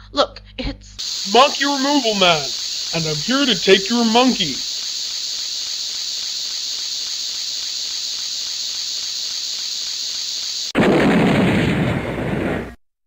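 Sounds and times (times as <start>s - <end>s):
steady high hiss: 1.0s - 10.8s
explosion rumbling: 10.8s - 12.8s.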